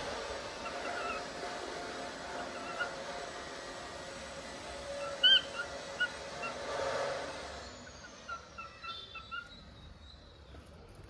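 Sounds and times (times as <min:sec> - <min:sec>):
cockatiel chirping: 0:00.6 - 0:01.2, 0:02.4 - 0:03.0, 0:05.0 - 0:06.6, 0:08.1 - 0:10.3.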